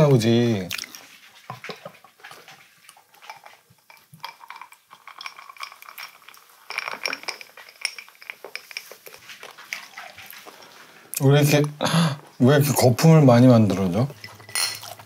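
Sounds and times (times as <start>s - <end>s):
beer pouring and foaming: 0.0s - 15.0s
glassy clinks: 3.9s - 9.0s, 14.1s - 15.0s.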